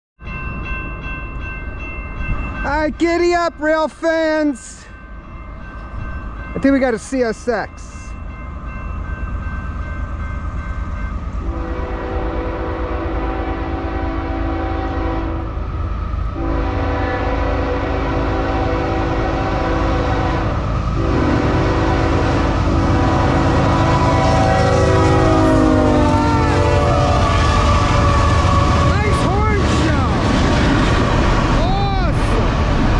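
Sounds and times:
train engines and wheels rumbling: 0:00.2 - 0:32.9
locomotive air horn: 0:11.4 - 0:15.5, 0:16.4 - 0:29.2.

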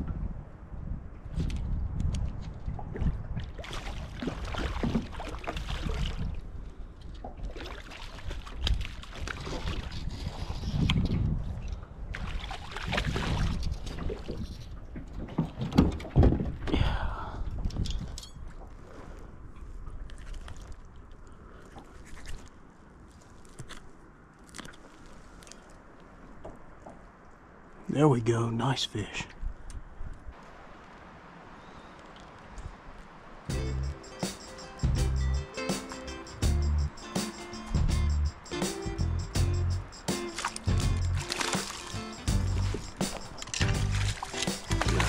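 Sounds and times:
wind rumbling on microphone: 0:00.0 - 0:27.9, 0:37.7 - 0:45.0
water lapping against a boat: 0:02.6 - 0:27.1, 0:40.2 - 0:45.0
small clicks and crunches: 0:21.9 - 0:26.1.

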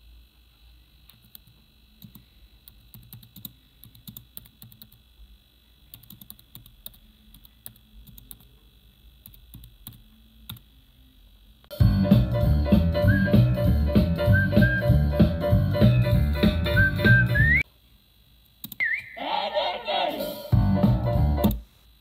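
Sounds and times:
faint high hum: 0:00.0 - 0:22.0
loud music: 0:11.7 - 0:17.6, 0:19.2 - 0:21.6.

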